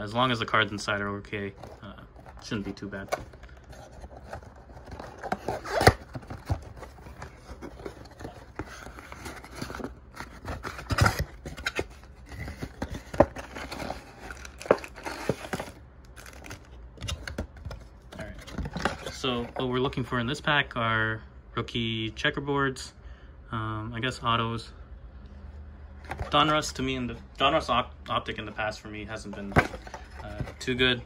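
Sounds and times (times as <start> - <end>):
cardboard scraping and tearing: 1.6 - 17.3
foil packs crinkling: 2.2 - 16.7.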